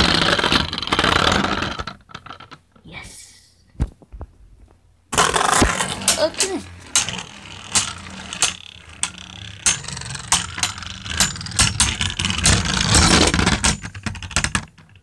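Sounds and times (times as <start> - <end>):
spinning tops whirring: 5.1 - 13.8
spinning tops clashing with clicks: 5.2 - 14.6.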